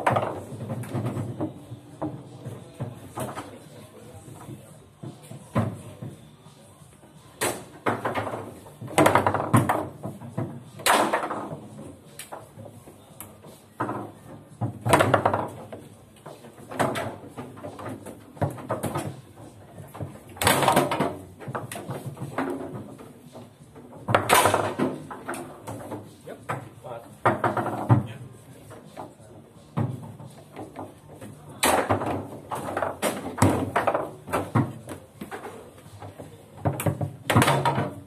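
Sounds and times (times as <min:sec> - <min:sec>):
foosball ball knocking: 0:00.0 - 0:02.2, 0:07.4 - 0:11.7, 0:13.8 - 0:28.1, 0:29.7 - 0:38.0
foosball rods clacking: 0:00.0 - 0:02.2, 0:07.4 - 0:12.6, 0:13.8 - 0:28.1, 0:29.8 - 0:38.0.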